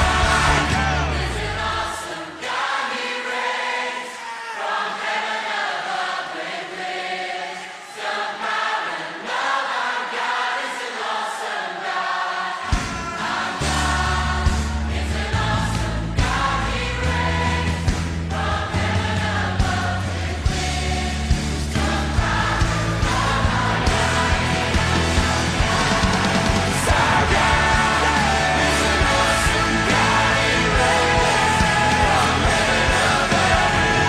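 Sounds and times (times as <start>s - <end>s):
bass line: 0.0s - 1.8s, 13.6s - 34.0s
drums: 0.0s - 2.0s, 12.6s - 34.0s
choir singing worship music: 0.0s - 34.0s.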